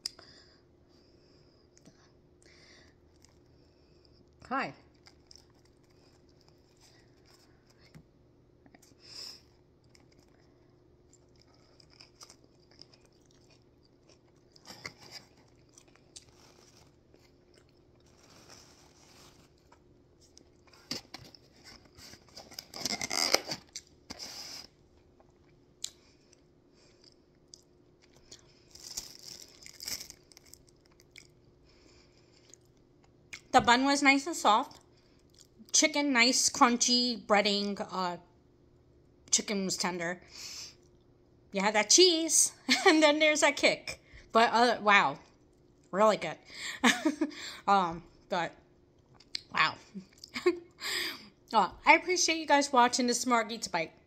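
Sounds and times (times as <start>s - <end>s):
crunchy chewing: 4.9s - 8.0s, 8.8s - 24.0s, 25.2s - 31.4s.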